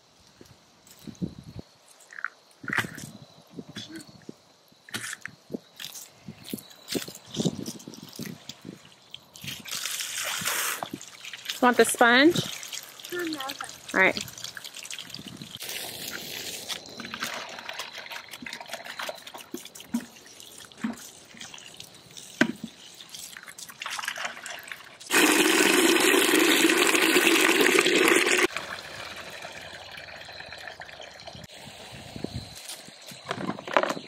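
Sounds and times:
hose water splashing into buckets: 5.9s - 31.6s.

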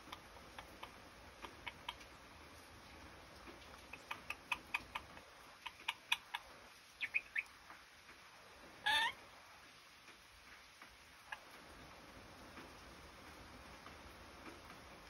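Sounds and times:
parrot clicking chirps: 0.1s - 2.1s, 3.8s - 6.4s, 7.0s - 7.5s
loud parrot call: 8.8s - 9.2s.

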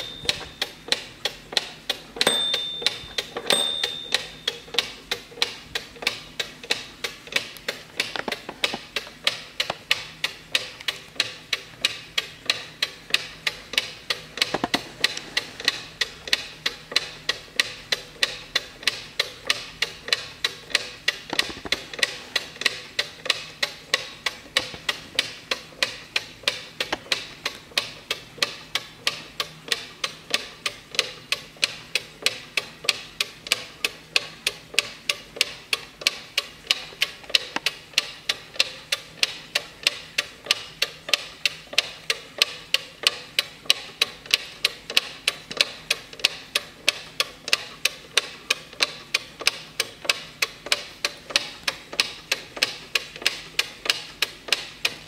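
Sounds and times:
clock ticking: 0.0s - 55.0s.

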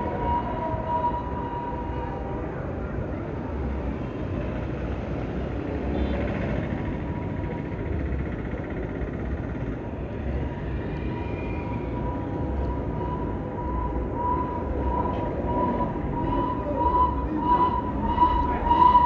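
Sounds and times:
traffic engines and tyres passing: 0.0s - 19.0s
steady high tone: 11.0s - 19.0s.

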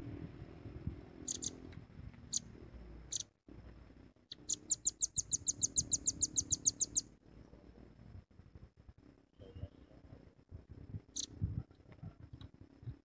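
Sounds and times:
bird chipping calls: 1.2s - 1.6s, 2.2s - 2.5s, 3.1s - 3.3s, 4.3s - 7.1s, 11.1s - 11.4s.

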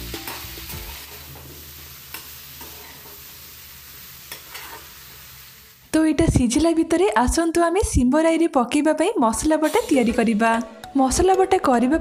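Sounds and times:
vegetables sizzling in oil: 0.0s - 6.0s, 9.6s - 10.4s
spatula scraping a pan: 4.3s - 5.0s.

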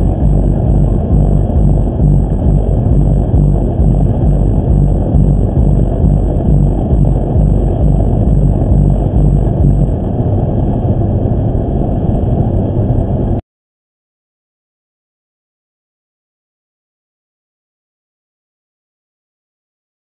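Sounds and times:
car tyre and engine rumble: 0.0s - 13.4s.

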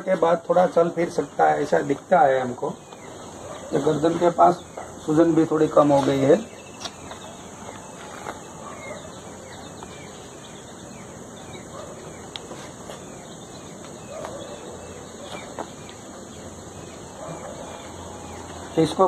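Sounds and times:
insects trilling: 0.0s - 19.0s
faint bird chirps: 6.2s - 19.0s.

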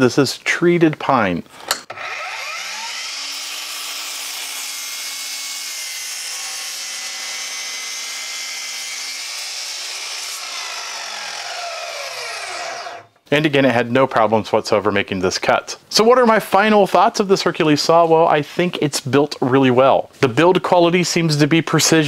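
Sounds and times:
miter saw cutting wood: 1.9s - 13.1s
saw blade spinning down: 1.9s - 13.1s.

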